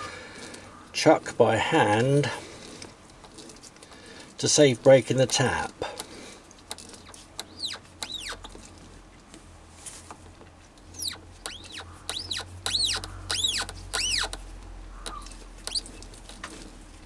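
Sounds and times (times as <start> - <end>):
tap squealing while cutting thread: 7.0 - 8.6, 11.0 - 14.4, 15.0 - 15.9.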